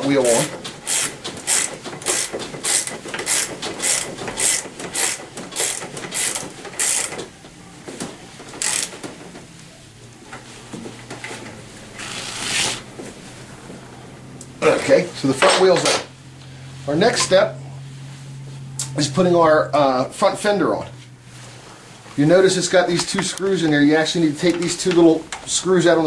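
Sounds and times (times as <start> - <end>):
ratchet wrench clicking: 0.8 - 7.2, 8.6 - 8.9.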